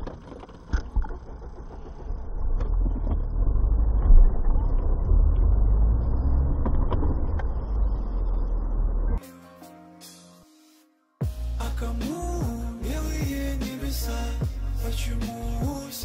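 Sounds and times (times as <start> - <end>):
car engine and tyres rumbling: 0.0 - 9.2.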